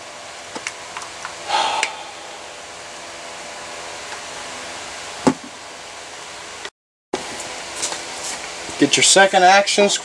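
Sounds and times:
fan-like room hiss: 0.0s - 10.0s.

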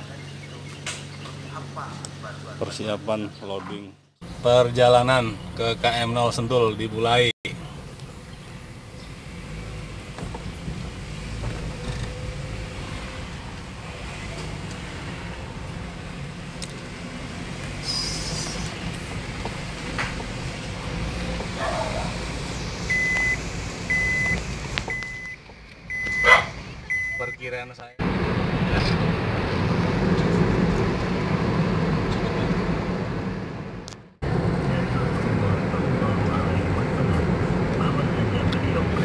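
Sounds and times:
engine and road rumble: 0.0s - 39.0s
short high electronic beep: 22.9s - 27.4s.

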